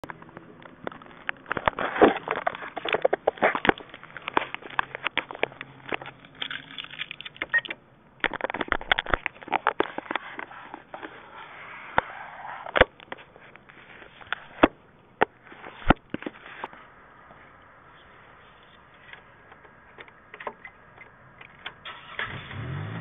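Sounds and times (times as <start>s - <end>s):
plastic clicks taps and scraping: 0.0s - 11.2s.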